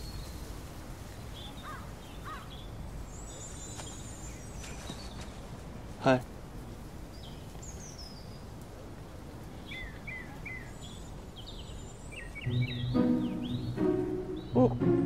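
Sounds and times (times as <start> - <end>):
outdoor background hiss: 0.0 - 15.0
small birds chirping: 0.0 - 15.0
background music with low notes: 12.4 - 15.0.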